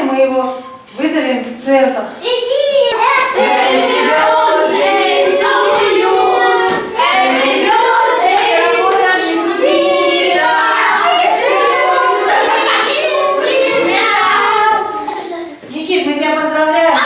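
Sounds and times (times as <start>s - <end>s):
children singing together: 2.2s - 15.6s.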